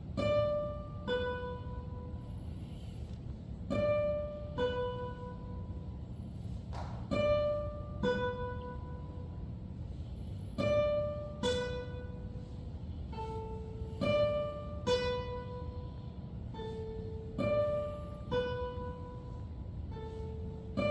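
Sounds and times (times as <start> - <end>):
classical guitars plucking notes: 0.0 - 20.9
soft tap: 6.6 - 7.2.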